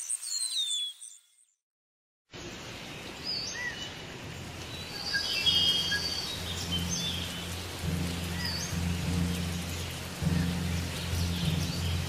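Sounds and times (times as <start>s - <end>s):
bird chirps and calls: 0.0s - 1.4s, 4.7s - 12.0s
rain-like hiss: 2.3s - 12.0s
low rumble: 5.8s - 12.0s.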